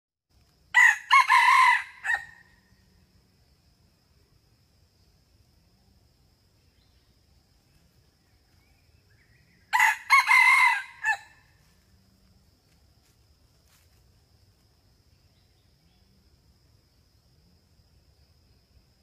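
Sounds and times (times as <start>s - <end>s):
rooster crowing: 0.7s - 2.5s, 9.7s - 11.5s.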